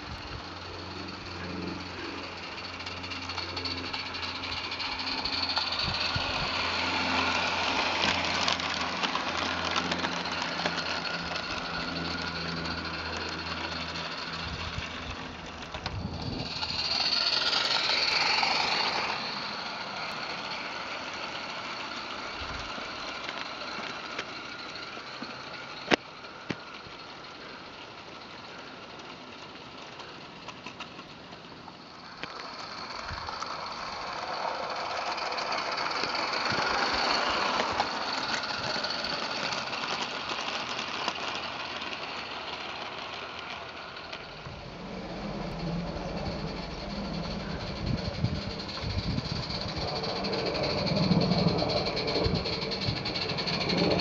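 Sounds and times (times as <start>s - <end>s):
steady low hum: 0.0s - 29.1s, 42.3s - 54.0s
model steam train running: 0.0s - 54.0s.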